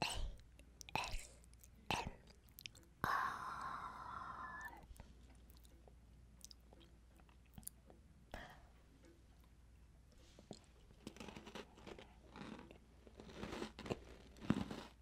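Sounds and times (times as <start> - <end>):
crisp bite into biscuit: 10.5 - 15.0.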